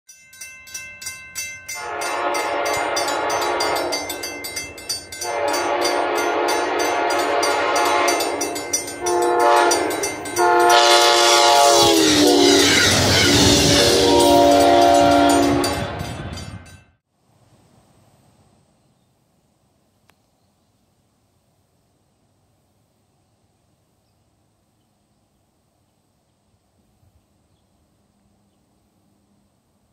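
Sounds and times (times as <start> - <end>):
crossing bell dinging: 0.1 - 16.9
train wheels rushing on rails: 1.7 - 16.8
locomotive air horn blasts: 1.8 - 4.3, 5.2 - 16.0.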